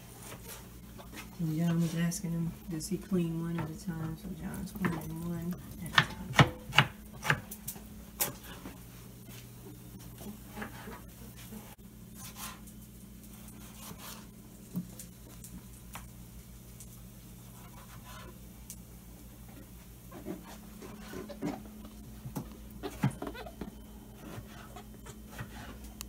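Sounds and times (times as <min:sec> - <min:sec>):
steady low hum: 0:00.0 - 0:26.0
knife chopping on cutting board: 0:05.9 - 0:07.4.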